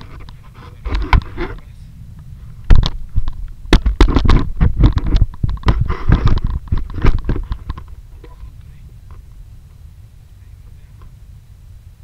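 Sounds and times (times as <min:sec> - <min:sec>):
wind buffeting microphone: 0:00.0 - 0:12.0
camera handling knocks: 0:02.7 - 0:07.9.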